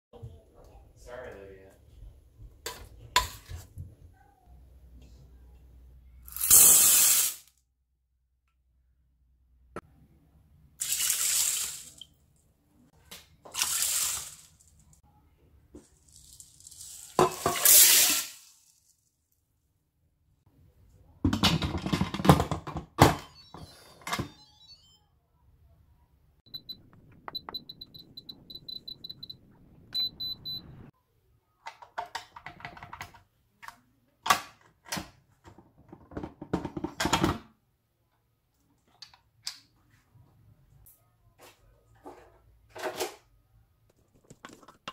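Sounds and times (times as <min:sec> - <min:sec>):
beans and water pouring into pot: 0:10.8 - 0:12.0, 0:13.5 - 0:14.7, 0:15.9 - 0:19.0
short high electronic beeps: 0:26.5 - 0:30.9.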